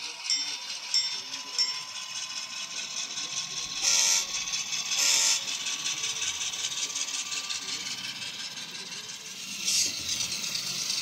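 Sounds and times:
model locomotive engine sound: 0:00.0 - 0:11.0
bell ringing: 0:00.3 - 0:02.4.

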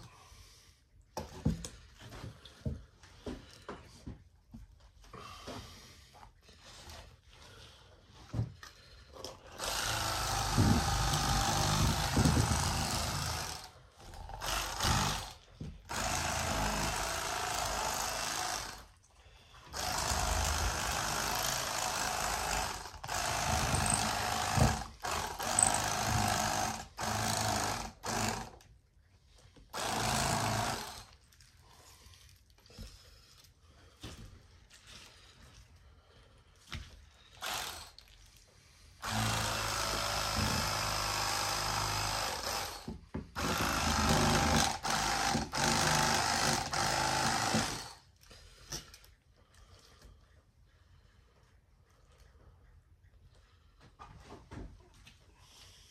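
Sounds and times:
electric fillet knife running: 0:09.6 - 0:13.7.

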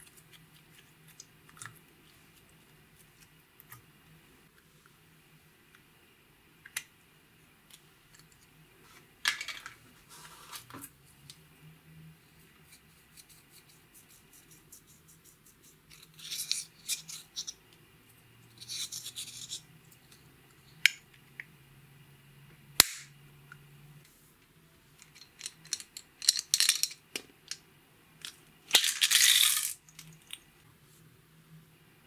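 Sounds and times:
beads rattling in plastic container: 0:28.7 - 0:29.9.

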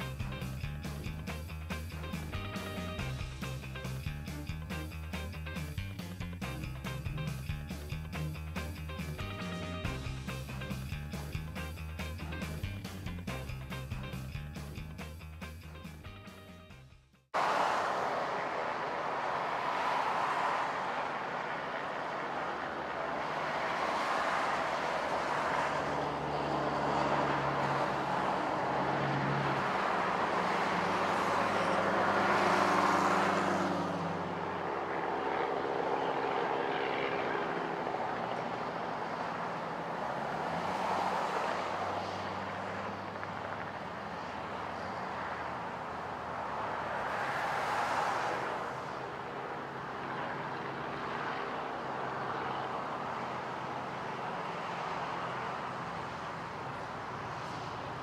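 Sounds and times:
road traffic passing: 0:00.0 - 0:58.0
helicopter engine and rotor: 0:34.3 - 0:39.0, 0:49.4 - 0:54.3.

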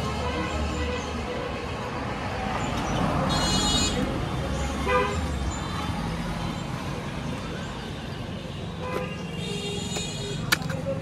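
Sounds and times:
traffic rumbling: 0:00.0 - 0:11.0
vehicle horn toot: 0:03.3 - 0:04.0, 0:08.8 - 0:10.5.

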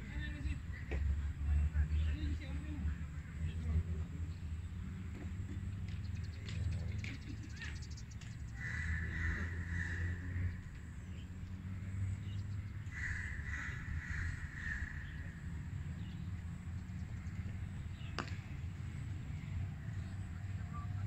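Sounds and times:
crows cawing: 0:08.6 - 0:10.6, 0:12.8 - 0:15.7.

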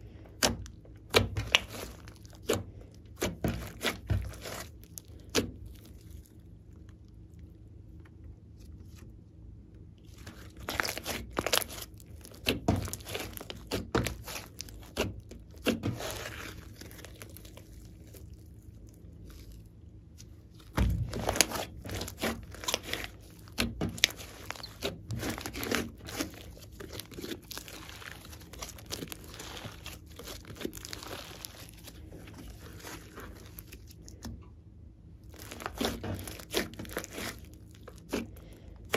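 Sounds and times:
slime squeezed by hand: 0:20.2 - 0:34.2, 0:35.3 - 0:38.9.

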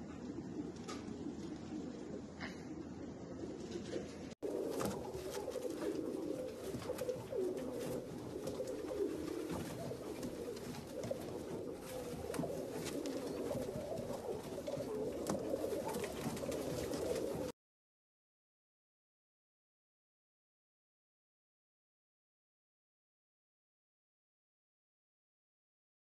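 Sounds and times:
pigeons cooing: 0:00.0 - 0:17.5.

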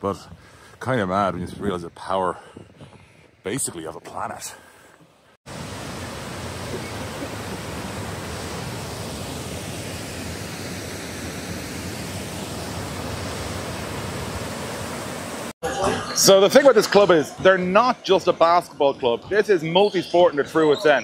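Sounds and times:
waterfall rushing: 0:05.5 - 0:15.6.

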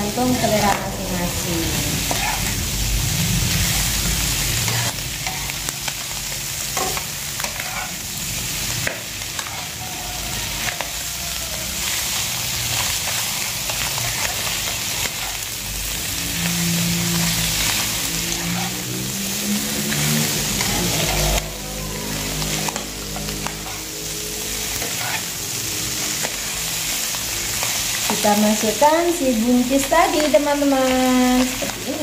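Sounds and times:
meat sizzling in a wok: 0:00.0 - 0:32.0
metal spatula scraping pan: 0:02.0 - 0:02.5, 0:04.6 - 0:05.5, 0:06.8 - 0:08.0, 0:08.8 - 0:11.0, 0:16.5 - 0:19.0, 0:19.7 - 0:23.9, 0:24.6 - 0:25.4.

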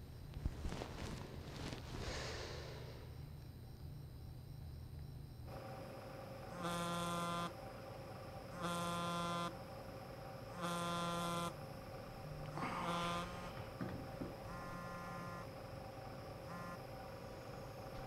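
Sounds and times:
short rustle: 0:00.4 - 0:02.5
mobile phone buzzing: 0:05.5 - 0:09.8, 0:10.4 - 0:17.2.

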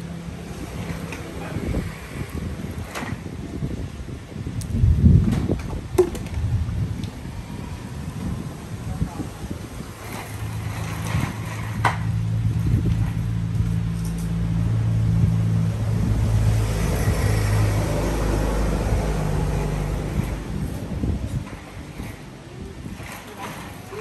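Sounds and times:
engine humming: 0:05.8 - 0:24.0.

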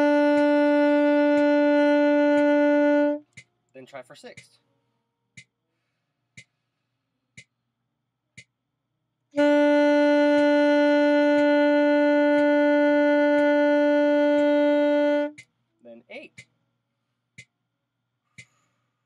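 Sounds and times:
saxophone long held note: 0:00.0 - 0:03.2, 0:09.4 - 0:15.4
metronome clicking: 0:00.0 - 0:03.5, 0:09.4 - 0:15.6.

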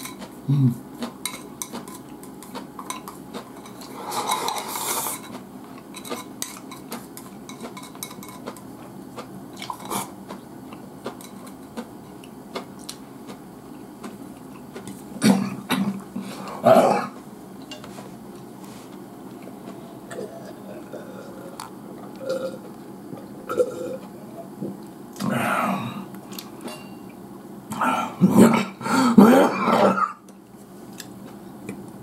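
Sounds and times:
tableware clattering: 0:26.6 - 0:27.1.

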